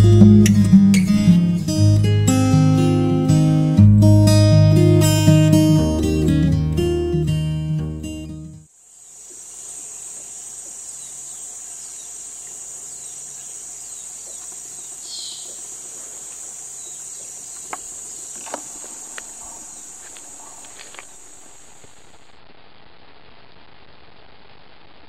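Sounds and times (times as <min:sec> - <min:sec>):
high-pitched insect drone: 0:08.7 - 0:22.2
bird chirps: 0:09.9 - 0:15.7, 0:16.7 - 0:21.8.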